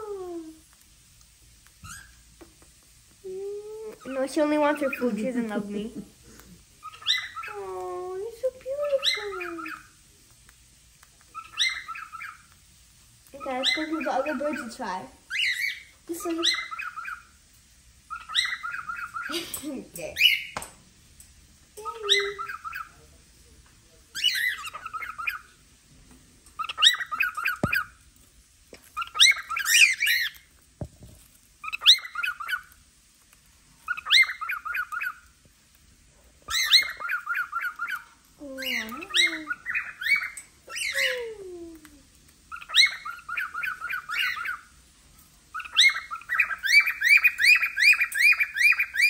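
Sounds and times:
cockatiels chirping: 1.7s - 2.3s, 3.8s - 10.0s, 11.1s - 12.6s, 13.2s - 17.4s, 18.1s - 20.6s, 21.8s - 23.1s, 24.1s - 25.6s, 26.5s - 28.0s, 28.8s - 30.6s, 31.6s - 32.8s, 33.7s - 35.4s, 36.4s - 41.2s, 42.5s - 44.8s, 45.5s - 49.0s.

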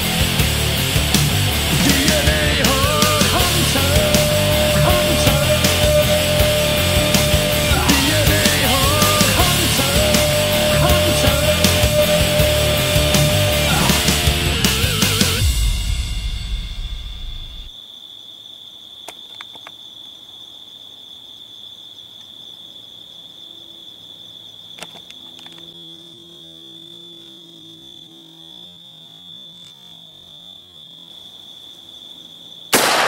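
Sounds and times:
rock music: 0.0s - 17.7s
night insects trilling: 0.0s - 33.0s.

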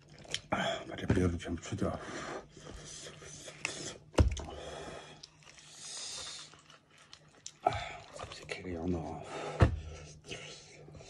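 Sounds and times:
wet handling noises: 2.5s - 10.0s.

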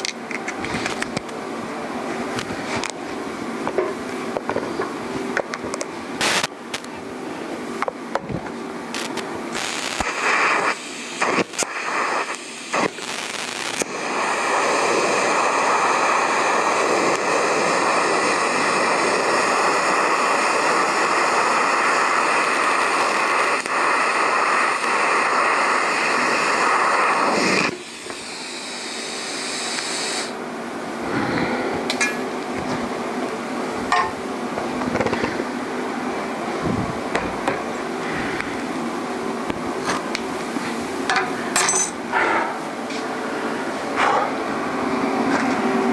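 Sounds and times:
workshop noise: 0.0s - 20.4s, 31.1s - 45.9s
electric arc welding: 6.2s - 6.9s, 8.9s - 30.4s.

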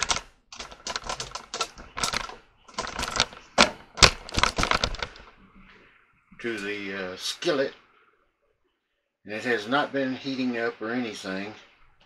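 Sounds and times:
kitchen clicks and knocks: 0.0s - 5.3s.

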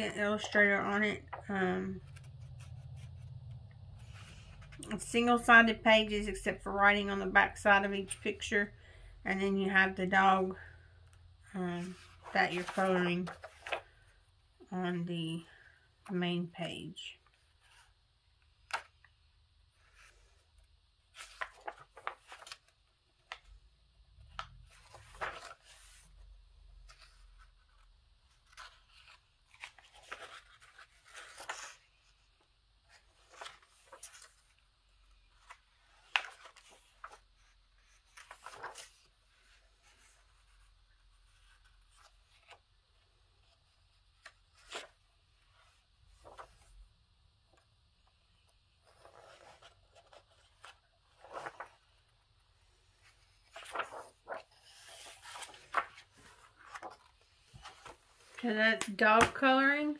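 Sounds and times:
book pages turning: 0.2s - 4.9s, 11.8s - 14.1s, 18.6s - 19.1s, 19.8s - 23.6s, 24.2s - 46.8s, 47.5s - 59.6s.

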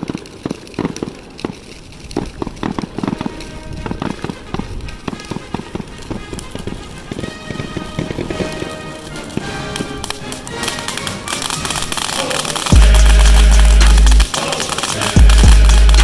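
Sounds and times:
fireworks bangs and pops: 0.0s - 16.0s
background music with steady tones: 3.2s - 16.0s.

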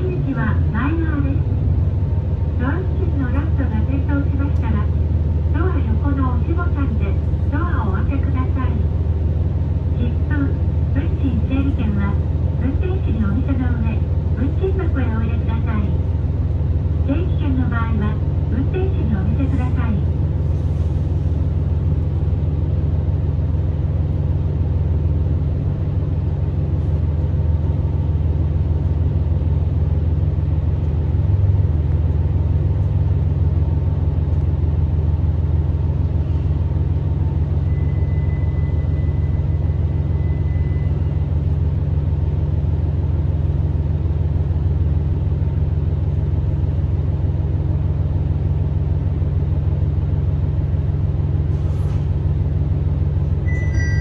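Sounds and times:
train engine and running rumble: 0.0s - 54.0s
faint thin squeal: 53.5s - 54.0s.

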